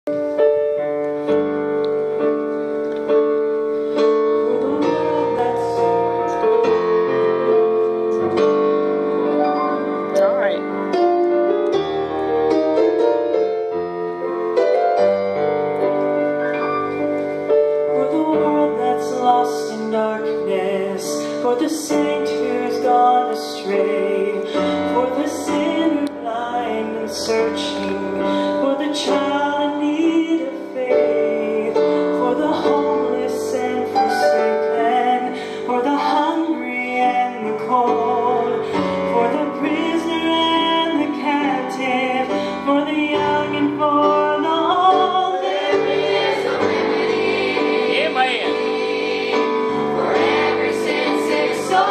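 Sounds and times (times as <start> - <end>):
piano accompaniment: 0.0 - 51.9
choir singing gospel song: 45.0 - 51.9.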